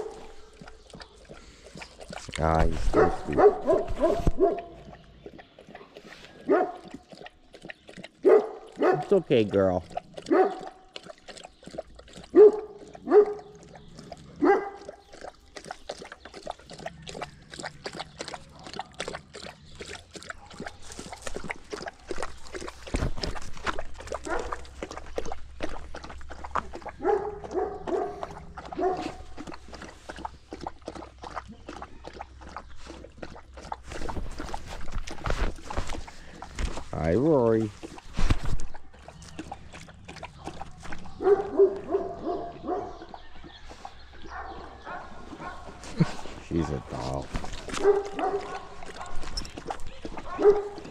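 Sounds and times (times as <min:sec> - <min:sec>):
dog lapping water: 0:00.0 - 0:50.9
dog barking: 0:02.8 - 0:04.8, 0:06.4 - 0:06.8, 0:08.2 - 0:09.2, 0:10.2 - 0:10.8, 0:12.3 - 0:13.6, 0:14.4 - 0:14.9, 0:24.2 - 0:24.6, 0:27.0 - 0:29.2, 0:41.1 - 0:43.1, 0:44.2 - 0:47.0, 0:47.7 - 0:49.3, 0:50.1 - 0:50.9.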